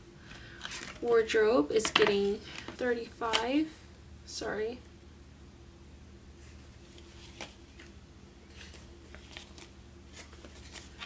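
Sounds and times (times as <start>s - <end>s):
banknotes rustling and flicking: 0.2s - 3.7s, 6.4s - 11.0s.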